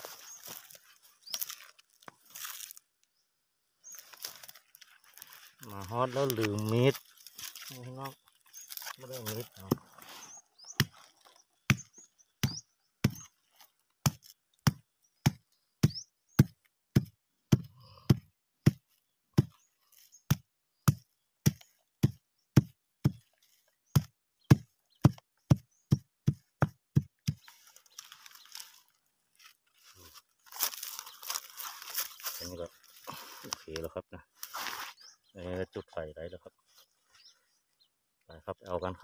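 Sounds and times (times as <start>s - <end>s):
stone pounding wood on rock: 9.6s - 9.9s, 10.7s - 13.3s, 14.0s - 18.8s, 19.4s - 19.7s, 20.3s - 23.2s, 23.9s - 27.5s.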